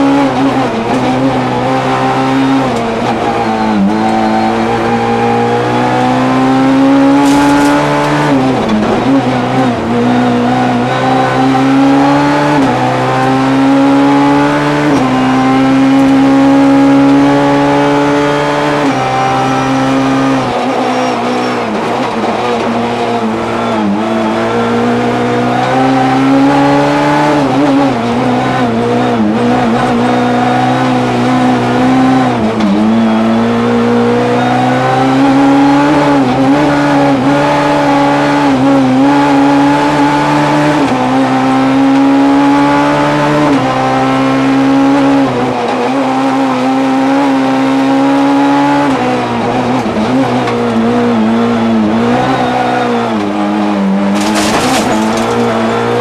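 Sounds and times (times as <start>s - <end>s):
rally car engine revving: 0.0s - 56.0s
gear shifts: 54.1s - 56.0s.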